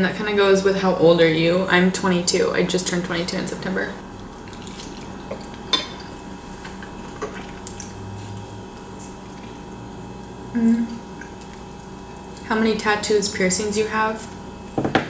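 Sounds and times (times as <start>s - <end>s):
person humming: 10.5s - 11.0s.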